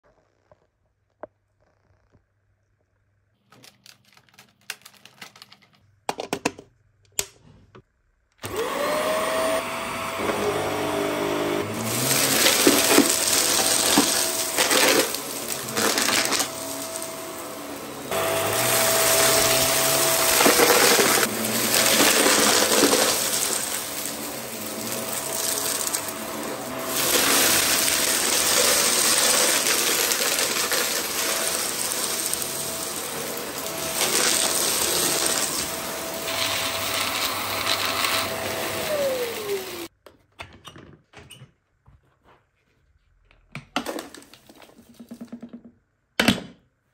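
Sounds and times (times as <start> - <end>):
vacuum cleaner motor whine: 8.4 - 39.9
debris crackling in vacuum: 11.8 - 39.9.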